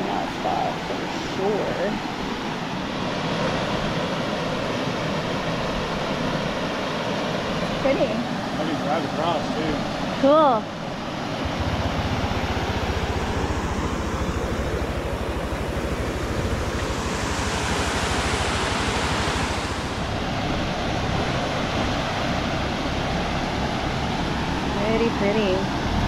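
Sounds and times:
water rushing over rocks: 0.0s - 26.0s.

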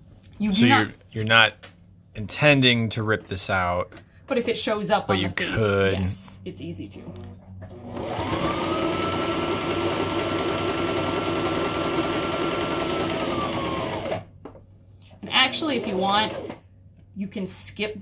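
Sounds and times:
electric sewing machine stitching: 7.1s - 14.3s, 15.3s - 16.6s.

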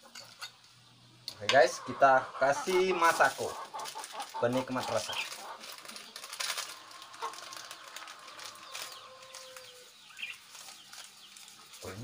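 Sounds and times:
chickens clucking: 0.0s - 12.0s
plastic sachet crinkling: 2.7s - 12.0s.

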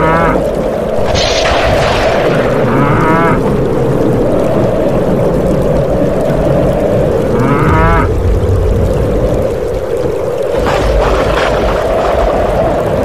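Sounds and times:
heavy rush of water: 0.0s - 13.0s.

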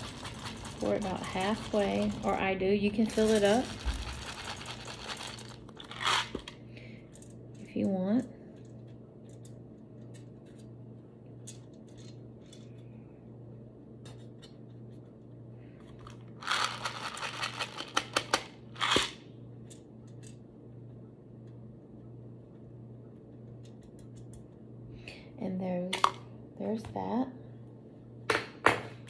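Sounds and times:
plastic beads clattering: 0.0s - 6.5s, 16.4s - 19.0s.

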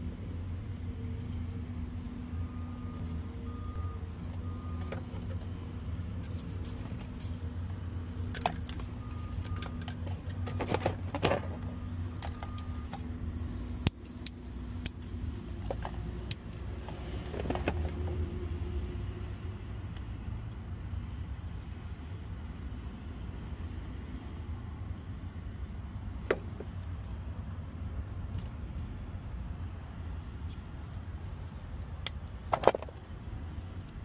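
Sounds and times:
vehicle engine hum: 0.0s - 34.0s
wires and connector rattling: 6.2s - 13.1s
torch igniter clicking: 13.7s - 15.0s.

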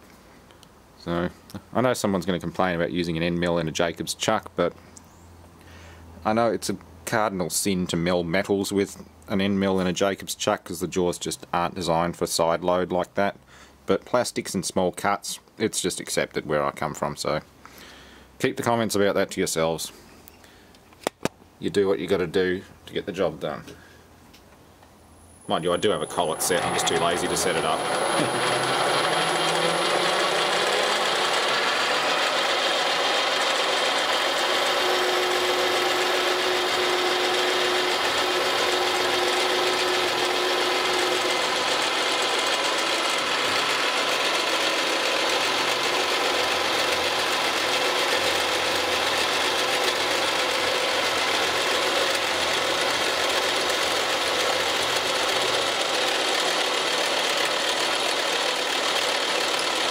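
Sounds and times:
milling machine cutting plastic: 25.4s - 59.9s.

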